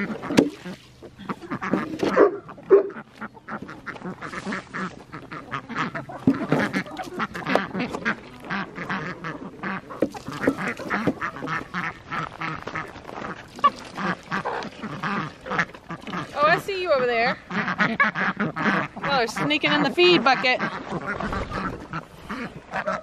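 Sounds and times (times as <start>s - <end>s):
chickens squawking: 0.0s - 23.0s
ducks quacking: 0.0s - 23.0s.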